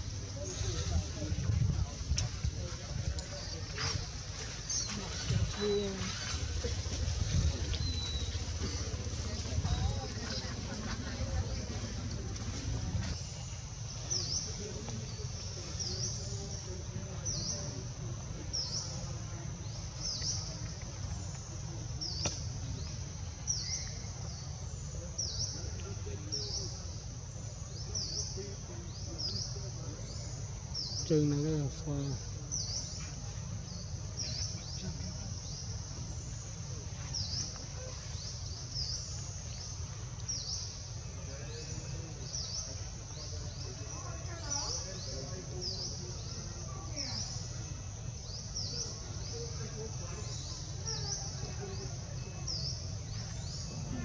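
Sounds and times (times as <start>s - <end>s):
steady low rumble: 0.0s - 14.6s.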